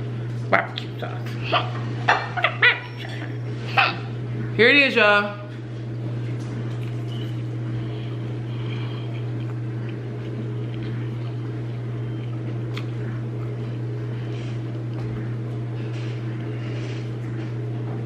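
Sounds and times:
steady low hum: 0.0s - 18.0s
person chewing food: 6.5s - 17.2s.

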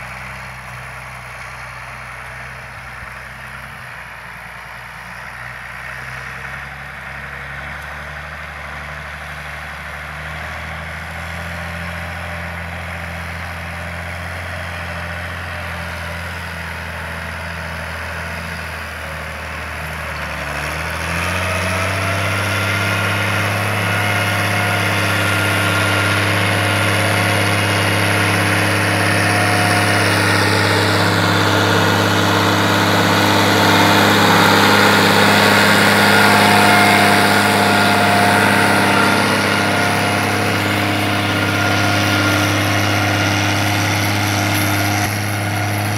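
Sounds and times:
tractor diesel engine running: 0.0s - 45.9s.

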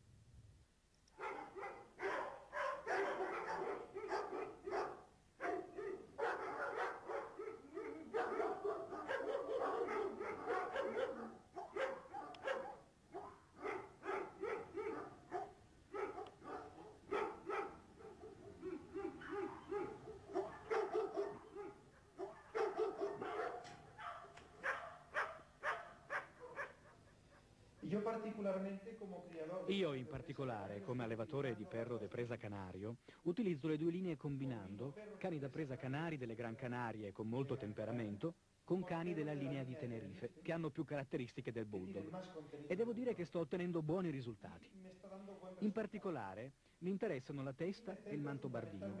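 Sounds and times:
dogs barking together: 1.2s - 27.6s.

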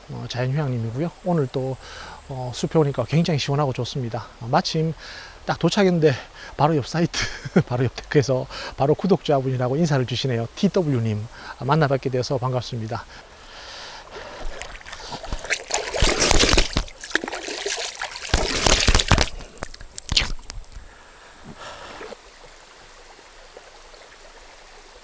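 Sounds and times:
stream trickling: 0.0s - 25.0s
water splashing and sloshing: 14.0s - 23.9s.

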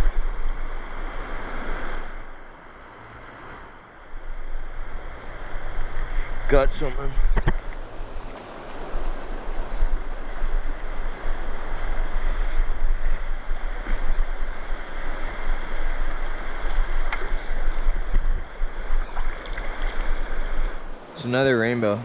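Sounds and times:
wind rumble on microphone: 0.0s - 21.1s
creek flowing: 0.9s - 6.0s.

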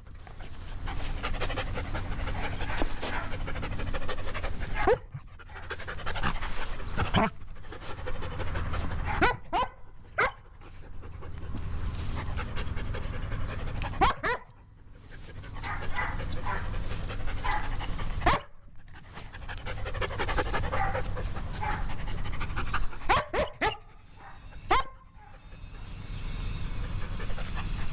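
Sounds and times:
dogs panting hard: 0.0s - 26.1s, 26.7s - 27.9s
dog yips and whines: 23.0s - 26.4s.

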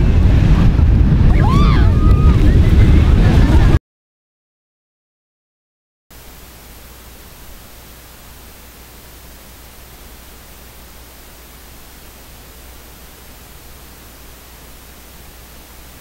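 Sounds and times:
electronic static hiss: 6.1s - 16.0s
faint high-pitched whine: 6.1s - 16.0s
low hum: 6.1s - 16.0s.

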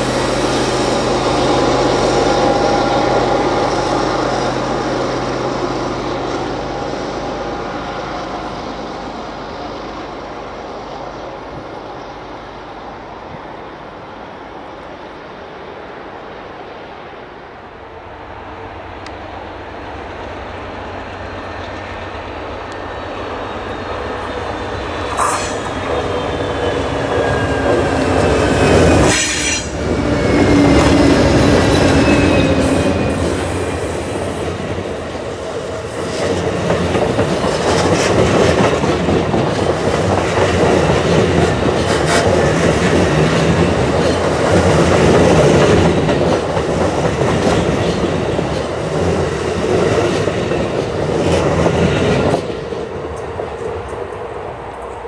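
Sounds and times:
diesel locomotive passing: 0.0s - 55.0s
thin wheel squeal: 25.1s - 27.7s.

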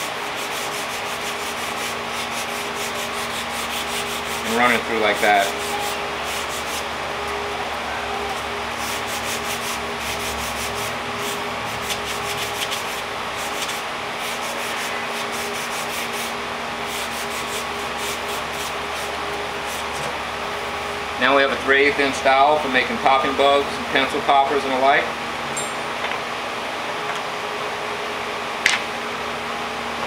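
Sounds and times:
sandpaper scratching on wood: 0.0s - 6.9s, 8.8s - 20.0s.

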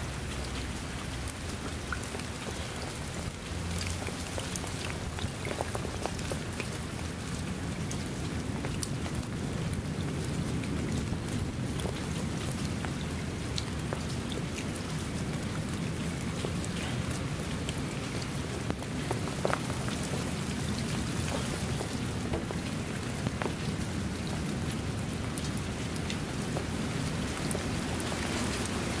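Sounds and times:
rain falling: 0.0s - 29.0s
running water: 0.0s - 29.0s.

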